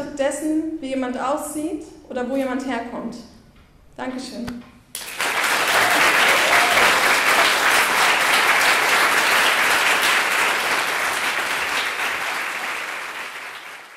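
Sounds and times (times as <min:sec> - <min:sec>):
audience applauding: 0:05.0 - 0:13.9.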